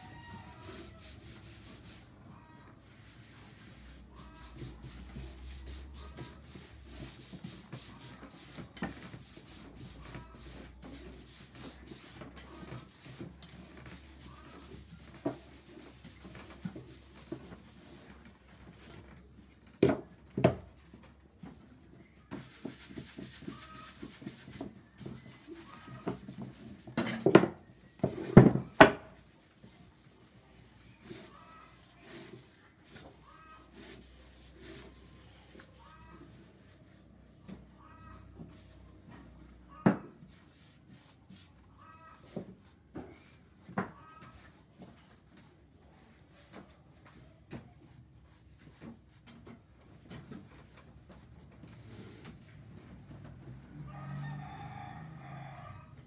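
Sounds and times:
iron scraping over straw hat: 0:00.0 - 0:18.2, 0:22.2 - 0:28.8, 0:29.5 - 0:38.4.

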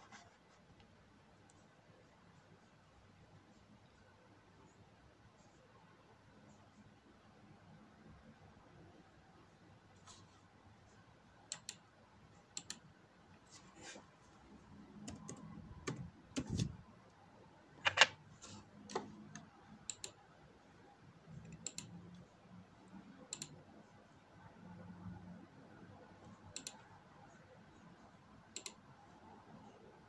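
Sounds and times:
laptop clicks: 0:17.8 - 0:18.2.

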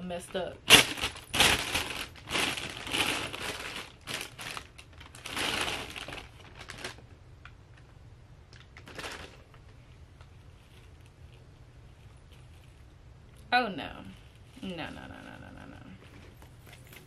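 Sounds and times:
plastic bag crinkling: 0:00.2 - 0:07.8, 0:08.5 - 0:11.4.

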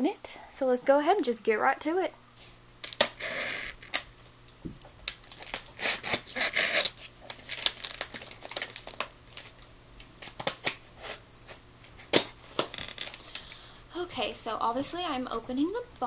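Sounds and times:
cardboard crinkling: 0:05.1 - 0:10.8.

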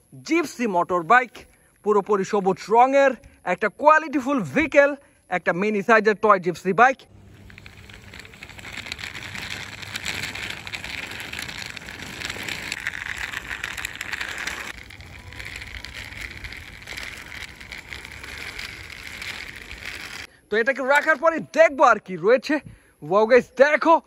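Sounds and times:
toy wheels rattling over rough ground: 0:07.1 - 0:22.0.

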